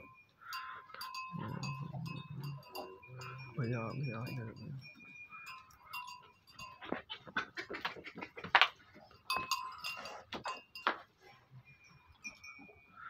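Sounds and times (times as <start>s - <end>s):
goat kid calling: 5.4s - 8.8s.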